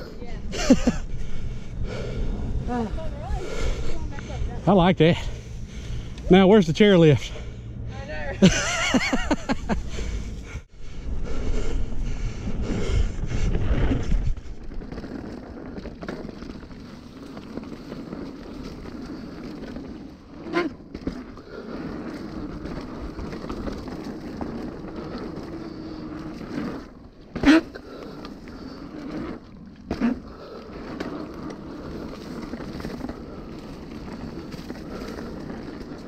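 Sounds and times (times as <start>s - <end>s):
bike tyres on dirt: 0.0s - 36.0s
wind buffeting microphone: 10.3s - 15.0s.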